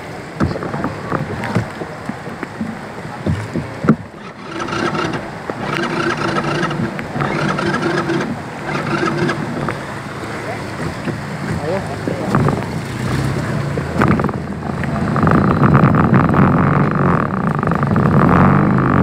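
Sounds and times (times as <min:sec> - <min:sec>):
wading through splashing water: 0:00.0 - 0:15.4
humming sound: 0:13.8 - 0:19.0.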